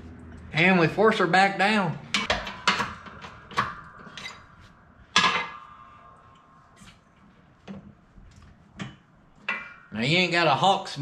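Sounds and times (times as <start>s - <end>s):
metal clanking: 2.1s - 10.6s.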